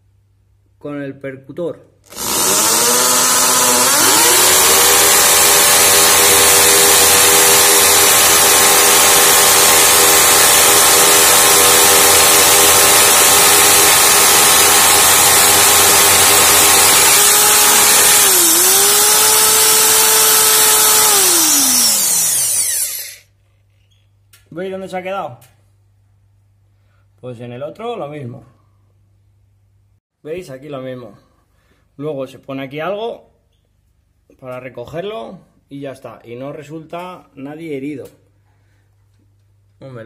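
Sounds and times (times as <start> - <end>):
hammer drill motor whine: 2.1 - 23.2.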